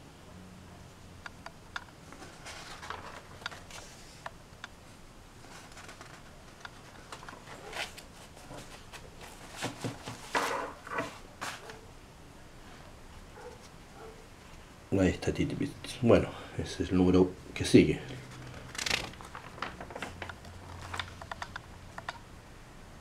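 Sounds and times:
magazine pages rustling: 0:02.1 - 0:04.2, 0:05.3 - 0:11.8, 0:18.0 - 0:21.4.

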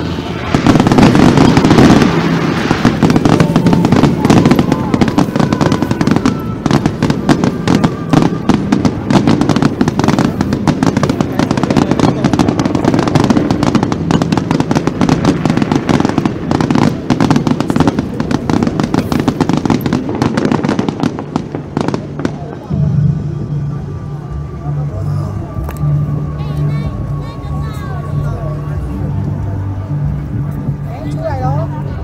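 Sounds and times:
fireworks bangs and crackling: 0:00.0 - 0:32.0
low rumble: 0:21.1 - 0:32.0.

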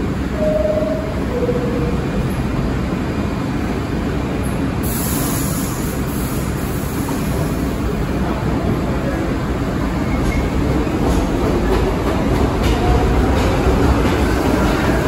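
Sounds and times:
low train rumble: 0:00.0 - 0:15.0
hiss of air: 0:04.8 - 0:07.8.

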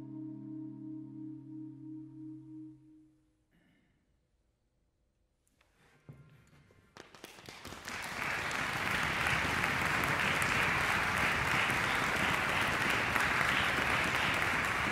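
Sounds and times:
audience applauding: 0:07.0 - 0:14.9.

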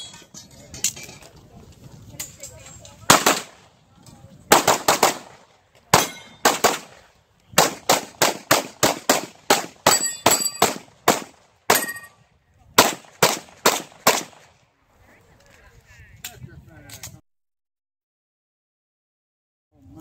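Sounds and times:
pistol shots: 0:03.1 - 0:03.6, 0:04.5 - 0:12.0, 0:12.8 - 0:14.5
steel targets ringing: 0:06.0 - 0:06.5, 0:09.9 - 0:10.8, 0:11.7 - 0:12.2.

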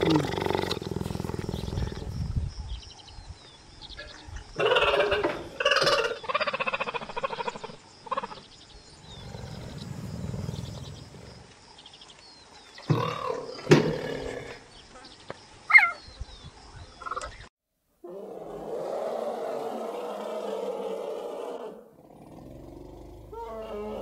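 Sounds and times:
big cat growling: 0:00.0 - 0:02.2, 0:09.0 - 0:11.5, 0:18.1 - 0:24.0.

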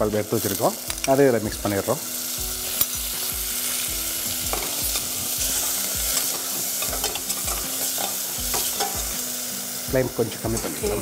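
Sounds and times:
ghee sizzling in a pan: 0:00.0 - 0:11.0
spoon tapping and scraping pan: 0:04.5 - 0:09.2.

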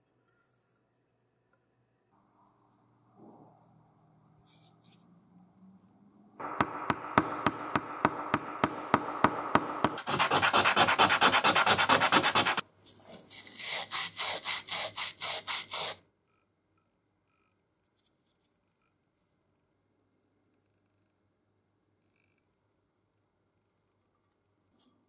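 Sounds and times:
sandpaper scratching on metal: 0:09.9 - 0:12.6, 0:13.2 - 0:16.0.

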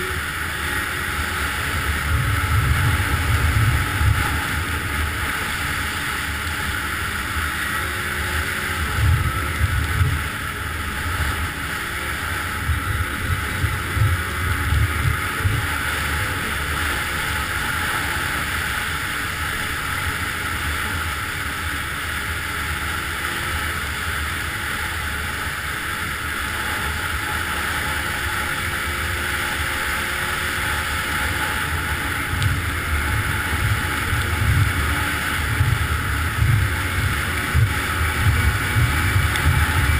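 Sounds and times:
snowmobile engine droning: 0:00.0 - 0:39.9
wind buffeting microphone: 0:01.2 - 0:06.6, 0:08.7 - 0:11.6, 0:12.3 - 0:16.7, 0:31.6 - 0:39.9.

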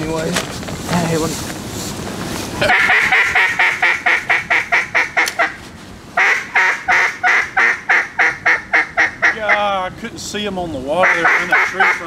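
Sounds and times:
duck call quacking: 0:02.6 - 0:05.6, 0:06.2 - 0:09.7, 0:11.0 - 0:12.0.

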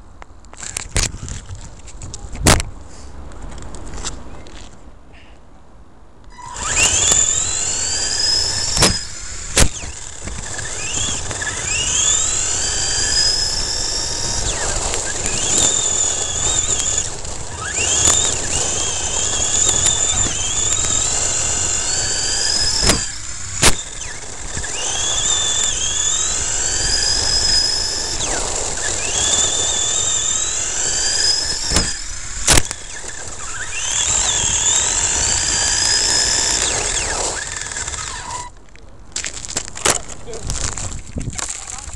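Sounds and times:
electric motor whine: 0:06.3 - 0:38.6.

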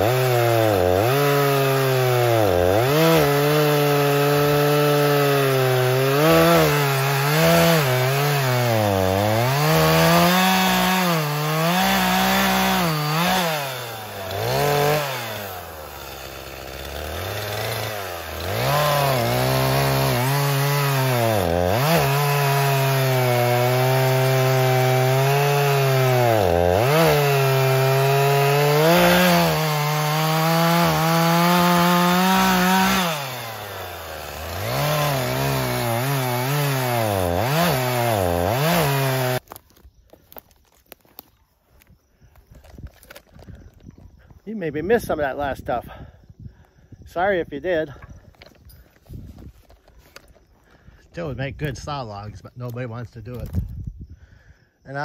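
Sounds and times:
chainsaw cutting log: 0:00.0 - 0:41.3, 0:42.6 - 0:43.7.

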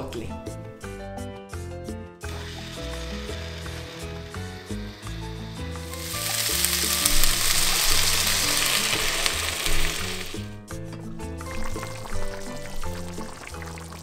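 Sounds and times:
background music: 0:00.0 - 0:14.0
food sizzling in a pan: 0:02.2 - 0:10.6, 0:11.4 - 0:14.0.

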